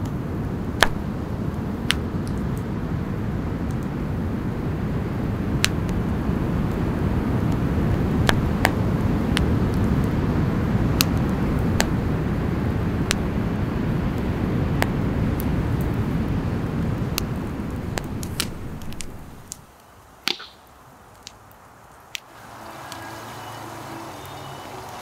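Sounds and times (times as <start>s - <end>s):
low rumble: 0.0s - 19.6s
campfire crackling: 0.0s - 25.0s
fire popping: 0.0s - 25.0s.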